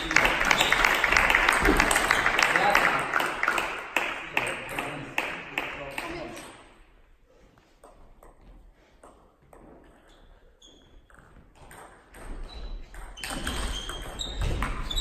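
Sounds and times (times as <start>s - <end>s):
shoes squeaking on floor: 10.0s - 11.6s, 12.2s - 15.0s
table tennis ball bouncing: 10.9s - 15.0s.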